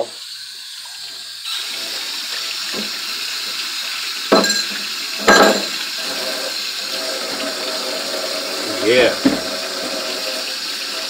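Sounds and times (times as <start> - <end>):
rushing hiss of running water: 0.0 - 11.0
metal cookware clanking: 4.3 - 5.8.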